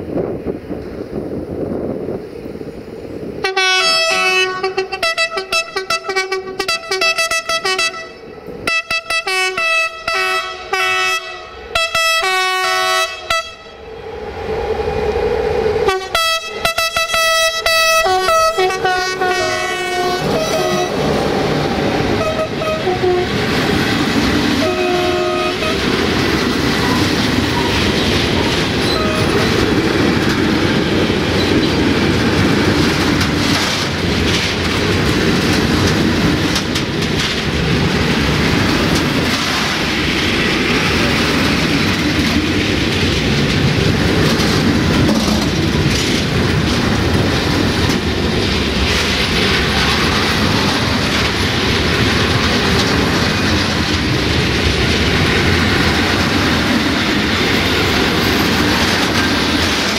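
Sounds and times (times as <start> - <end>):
locomotive horn blasts: 3.4 - 13.8, 15.8 - 21.1, 22.1 - 23.4, 24.6 - 26.0, 28.8 - 29.4
train wheels clattering on rails: 16.6 - 59.9.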